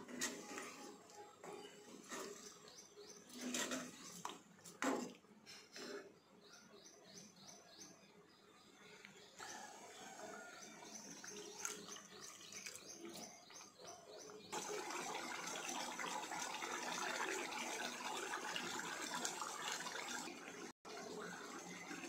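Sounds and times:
gravy bubbling and sizzling: 9.4 - 22.0.

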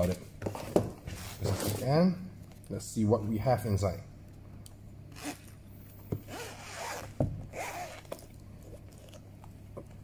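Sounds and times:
zipper rasping: 5.1 - 5.6, 6.2 - 8.4.

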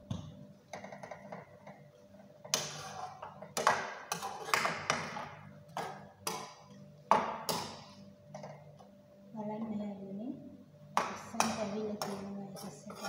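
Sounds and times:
metal spoon knocking on a pan: 11.0 - 12.4.

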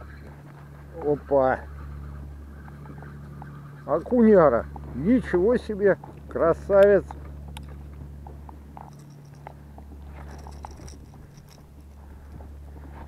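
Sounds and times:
steady low hum: 0.0 - 13.0
light clicks taps and rustles: 6.0 - 13.0.

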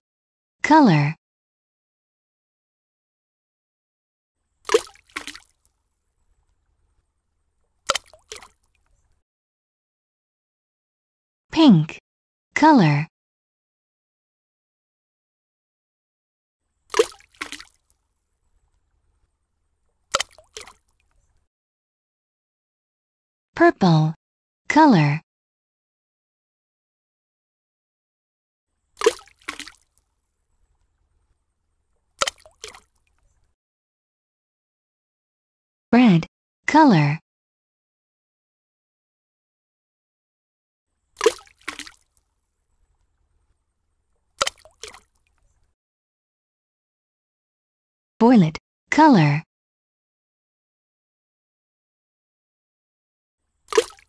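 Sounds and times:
cartoon liquid plops: 4.7 - 5.6, 7.9 - 8.7, 16.9 - 17.8, 20.1 - 20.9, 29.0 - 29.8, 32.2 - 32.9, 41.2 - 42.1, 44.4 - 45.2, 53.7 - 54.0.

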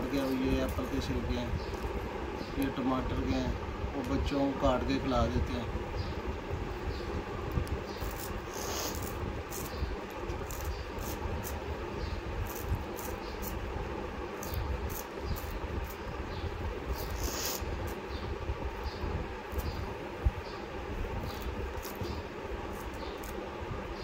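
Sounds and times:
low background rumble: 0.0 - 24.0
scissors snipping stems: 7.6 - 11.6, 12.4 - 13.6, 14.4 - 16.0, 21.2 - 23.4.

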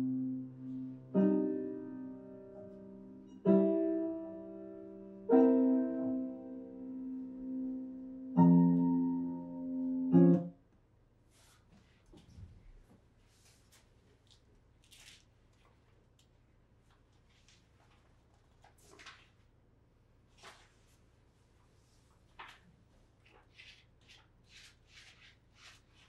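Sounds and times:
piano chords ringing: 0.0 - 10.6.

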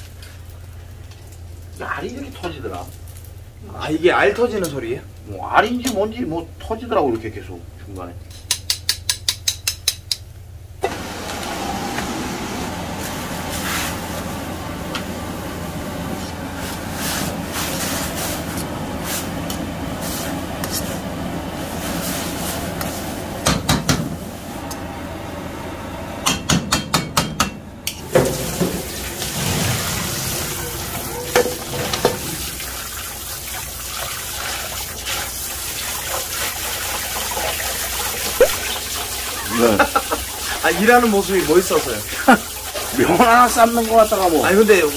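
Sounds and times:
deep-frying oil sizzling and popping: 0.0 - 7.3, 16.1 - 24.8, 26.2 - 44.9.

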